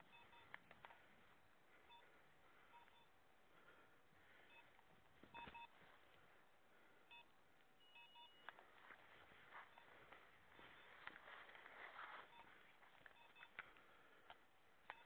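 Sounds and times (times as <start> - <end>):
short electronic beeps: 0.0 - 0.6, 5.3 - 5.7, 7.1 - 8.5, 12.2 - 13.6
brush rustling: 8.7 - 13.1.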